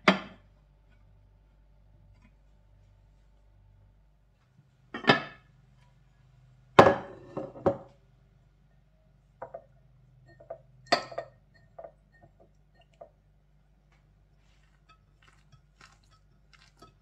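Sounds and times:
glass clinks and taps: 9.4s - 13.2s
glass lid ringing clunk: 10.3s - 12.4s
glass lid clinking on dish: 10.3s - 13.0s.

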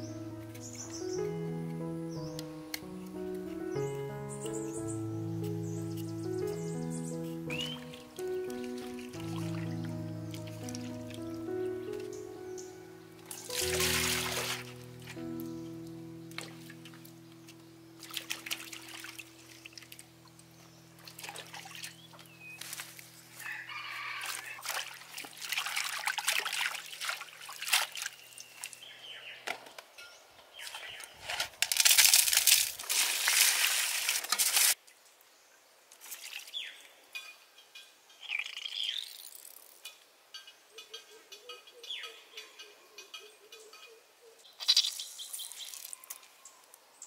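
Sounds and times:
water splashing in metal basin: 13.3s - 14.8s, 18.0s - 20.0s, 21.0s - 23.0s, 24.1s - 28.8s, 31.6s - 34.8s
rooster crowing: 23.4s - 24.6s.

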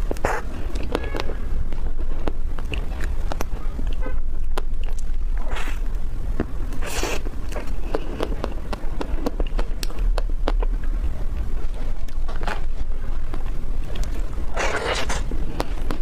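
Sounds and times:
lip smacks: 0.1s - 1.0s
chewing with mouth clicks: 2.1s - 16.0s.

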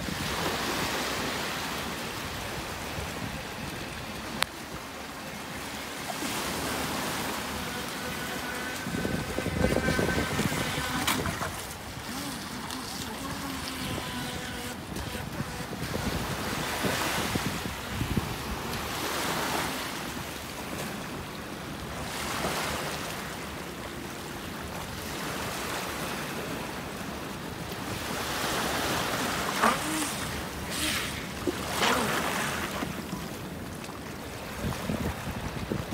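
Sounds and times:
small waves lapping at shore: 0.0s - 35.9s
water splashes: 0.0s - 35.9s
wind buffeting microphone: 7.7s - 18.9s, 34.6s - 35.9s.

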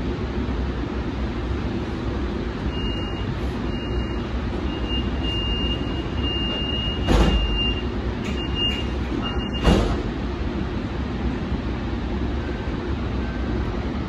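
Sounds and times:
low hum and rumble: 0.0s - 14.0s.

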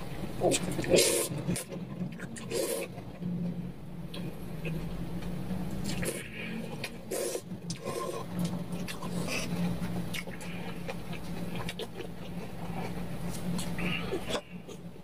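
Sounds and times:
steady low hum: 0.0s - 15.0s
slurping noodles: 0.4s - 3.1s, 5.8s - 14.8s
wet chewing mouth sounds: 0.4s - 3.2s, 5.8s - 14.9s.

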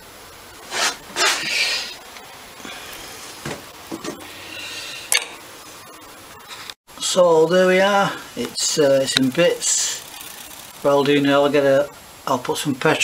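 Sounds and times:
metal rubbing and scraping: 0.6s - 2.0s.

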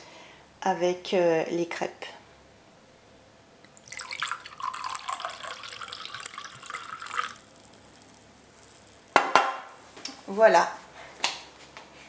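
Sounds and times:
cider pouring into a glass: 3.7s - 10.0s.

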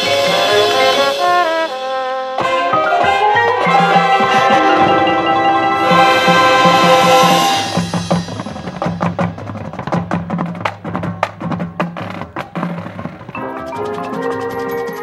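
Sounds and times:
marching band chord: 0.0s - 9.4s
repeating low drum figure: 4.4s - 11.6s
percussion clicks and hits: 7.7s - 15.0s.

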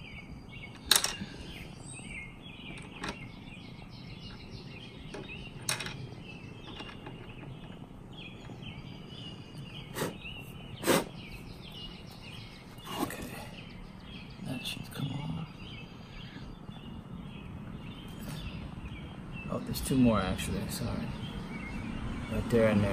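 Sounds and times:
birds chirping: 0.0s - 22.9s.

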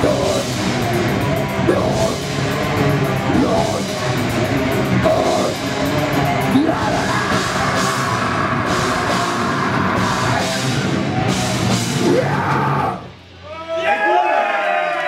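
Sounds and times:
distorted bass and guitar: 0.0s - 13.5s
pounding drum kit: 0.0s - 14.0s.

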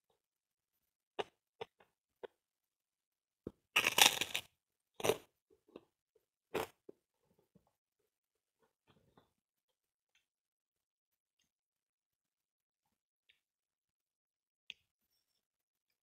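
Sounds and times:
cracker crunching: 3.7s - 5.3s.

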